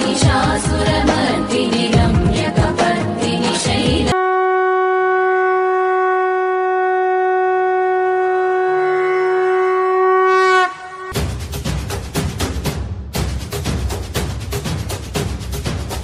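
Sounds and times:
drums: 0.0s - 4.2s, 11.1s - 16.0s
conch shell blown: 4.2s - 11.2s.

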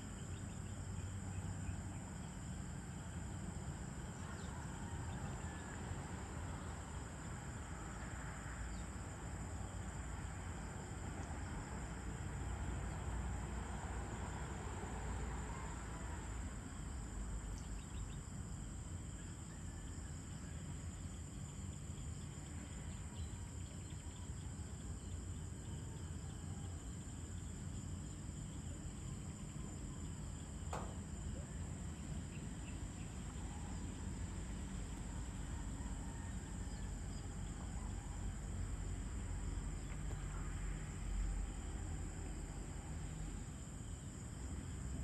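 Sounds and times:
crickets trilling: 0.0s - 45.0s.

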